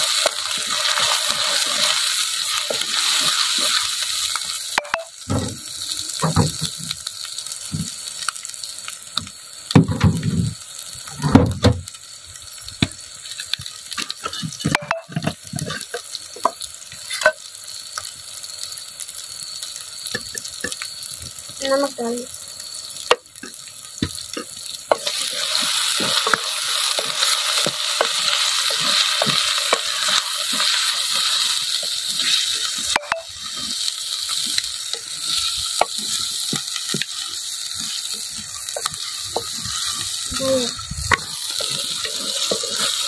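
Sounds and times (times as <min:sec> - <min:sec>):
food sizzling in a pot: 0:00.0 - 0:43.0
wooden spoon scraping: 0:41.1 - 0:43.0.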